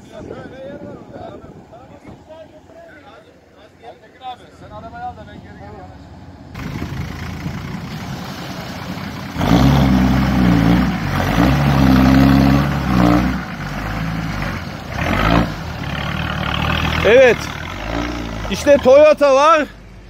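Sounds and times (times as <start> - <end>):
truck engine revving: 6.6 - 19.5.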